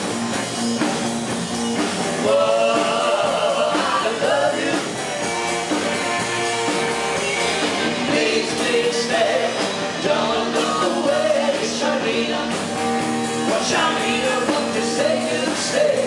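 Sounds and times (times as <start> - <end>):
electric bass: 0.0 - 16.0
electric guitar: 0.0 - 16.0
women singing together: 2.2 - 4.9, 8.1 - 12.7, 13.5 - 16.0.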